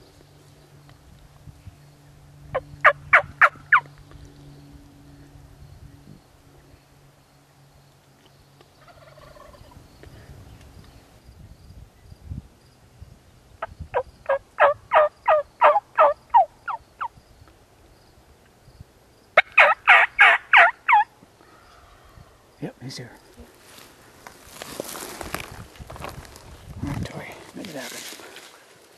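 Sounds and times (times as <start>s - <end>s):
turkey call yelping: 2.5s - 3.9s, 13.6s - 17.1s, 19.4s - 21.1s.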